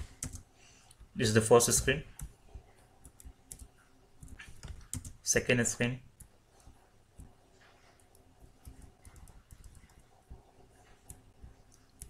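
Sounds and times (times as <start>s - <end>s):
keyboard and mouse clicks: 3.0s - 5.2s, 6.2s - 12.0s.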